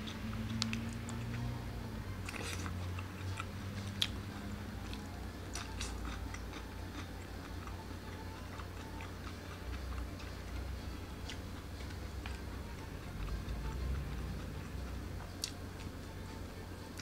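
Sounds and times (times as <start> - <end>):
person chewing: 0.0 - 1.5, 2.2 - 16.0
low hum: 0.0 - 17.0.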